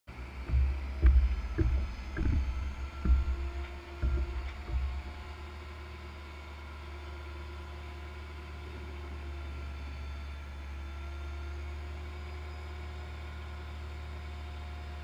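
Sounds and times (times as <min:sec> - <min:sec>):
truck engine running: 0:00.2 - 0:05.5
container thuds and clunks: 0:00.5 - 0:05.3.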